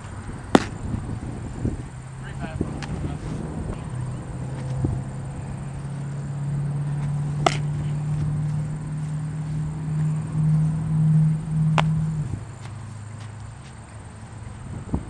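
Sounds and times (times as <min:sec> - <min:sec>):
steady low hum: 0:00.0 - 0:15.0
baseball popping into leather mitt: 0:00.5 - 0:00.8, 0:07.0 - 0:08.3, 0:11.7 - 0:12.0.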